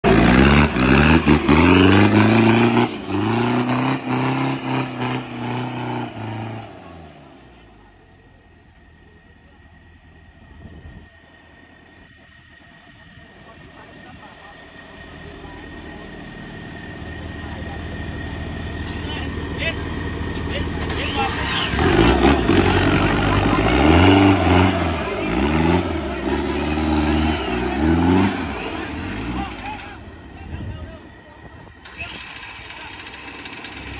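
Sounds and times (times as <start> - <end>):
truck engine revving hard: 0.0 - 8.0, 14.2 - 31.2.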